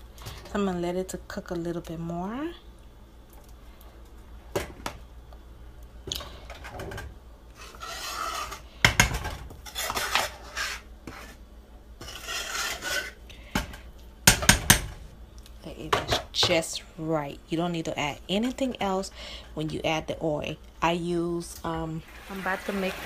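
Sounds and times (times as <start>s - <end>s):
spoon scraping metal pot: 7.5s - 8.7s, 9.6s - 11.4s, 12.0s - 13.2s.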